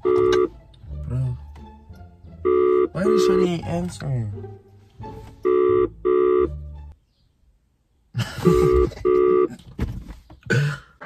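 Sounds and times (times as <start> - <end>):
phone ringback tone: 0.0 - 0.5, 2.4 - 3.4, 5.4 - 6.5, 8.4 - 9.5.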